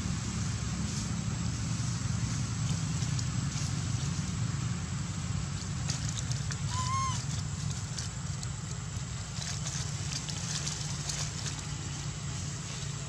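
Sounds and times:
steady low rumble: 0:00.0 - 0:13.0
monkey coo: 0:06.7 - 0:07.2.

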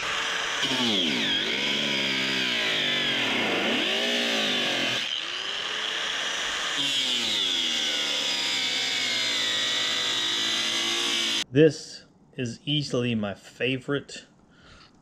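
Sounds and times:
angle grinder cutting metal: 0:00.0 - 0:11.4.

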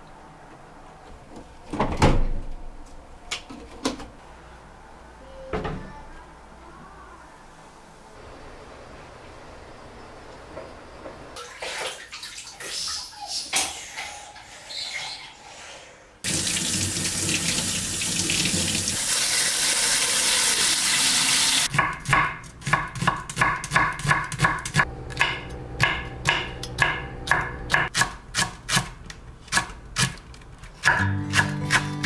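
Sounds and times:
water running from a tap: 0:16.3 - 0:21.7
knife chopping on wooden board: 0:21.7 - 0:28.9.

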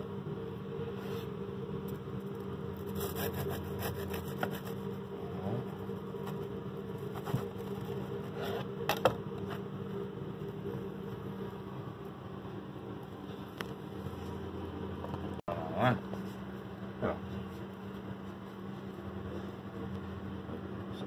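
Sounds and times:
steady background hum: 0:00.0 - 0:21.0
serrated knife sawing through bread: 0:02.8 - 0:05.0.

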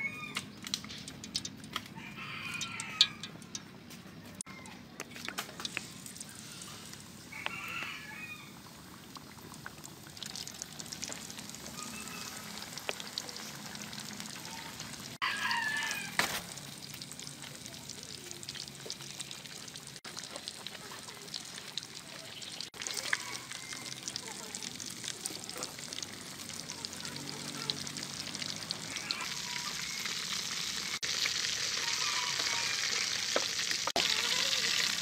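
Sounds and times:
chicken deep-frying in oil: 0:00.0 - 0:35.0
chicken calling: 0:06.4 - 0:08.6, 0:11.6 - 0:12.8, 0:28.8 - 0:33.4.

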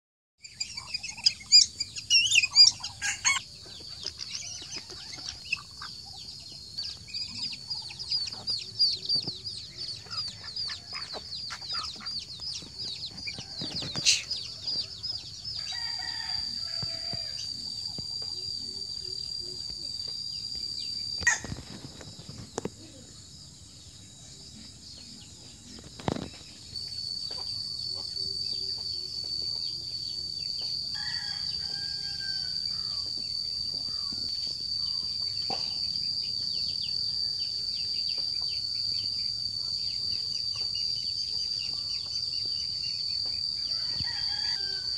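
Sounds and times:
insect chirring: 0:00.4 - 0:44.9
chickens clucking: 0:00.7 - 0:15.4
rooster crowing: 0:03.0 - 0:03.4, 0:13.2 - 0:17.6, 0:21.2 - 0:21.5, 0:30.9 - 0:33.2, 0:43.6 - 0:44.9.

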